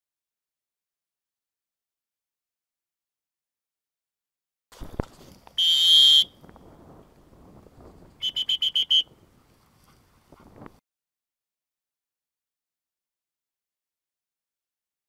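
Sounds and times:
dog whistle short pips: 5.6s - 6.3s, 8.2s - 9.1s
dog whistle long blast: 5.6s - 6.4s, 8.2s - 9.1s.

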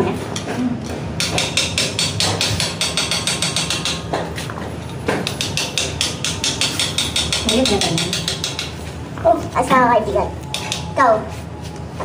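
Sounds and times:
rapid metallic tapping: 1.2s - 4.3s, 5.1s - 8.9s.

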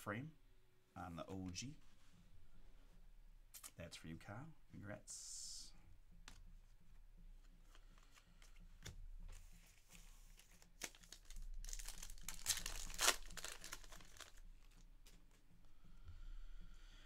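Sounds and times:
light clicks of cards handled: 6.2s - 6.5s
foil wrapper tearing and crinkling: 10.6s - 14.7s.

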